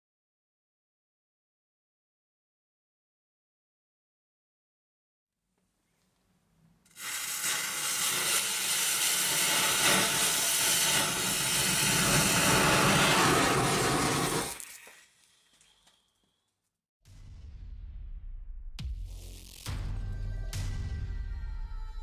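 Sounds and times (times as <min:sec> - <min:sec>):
firework fountain hissing: 0:06.9 - 0:15.3.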